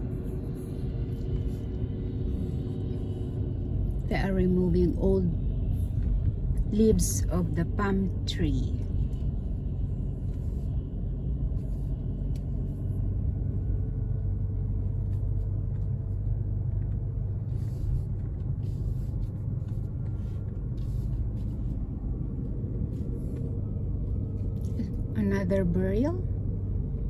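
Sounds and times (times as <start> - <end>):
car engine rumble: 0.0 - 27.0
road noise: 0.0 - 27.0.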